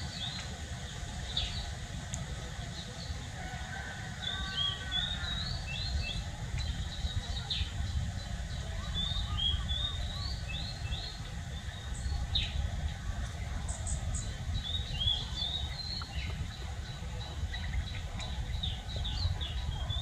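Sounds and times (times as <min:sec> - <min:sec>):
small birds chirping: 0:00.0 - 0:20.0
steady low rumble: 0:05.0 - 0:20.0.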